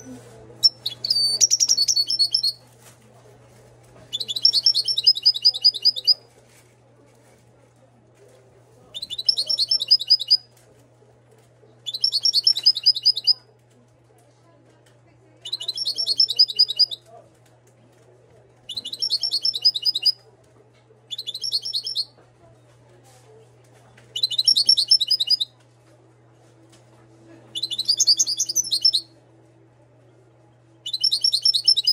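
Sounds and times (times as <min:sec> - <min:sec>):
goldfinch singing trills: 0:24.2 - 0:25.4.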